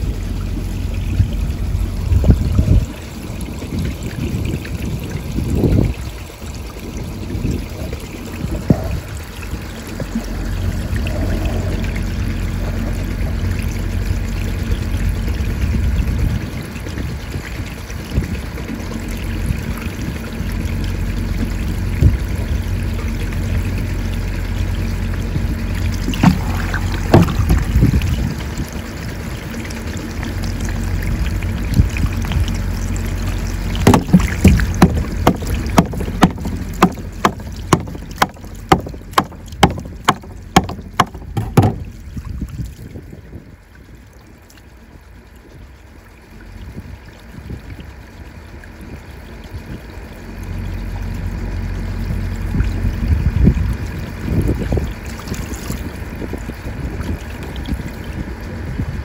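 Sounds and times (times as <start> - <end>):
water pouring into metal trough: 0.0 - 43.1
hand tool knocking on plastic cap: 33.9 - 41.8.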